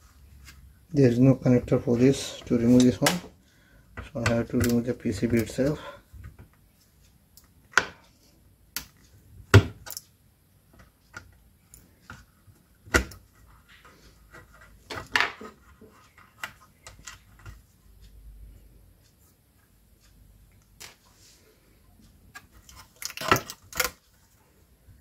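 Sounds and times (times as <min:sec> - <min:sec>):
clicks and knocks handling circuit board: 0:12.9 - 0:17.7, 0:22.3 - 0:24.1.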